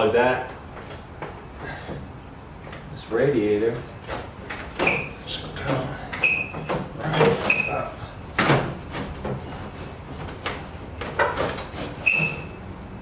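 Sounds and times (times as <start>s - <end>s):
clunks and knocks: 3.8s - 12.6s
short high squeaks: 4.8s - 5.4s, 6.2s - 8.0s, 11.7s - 12.7s.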